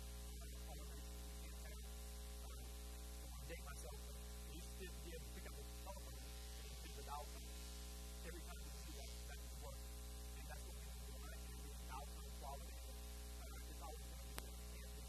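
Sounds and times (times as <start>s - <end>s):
electrical mains hum: 0.0s - 15.0s
faint person talking: 3.4s - 7.5s, 8.2s - 9.8s, 10.4s - 15.0s.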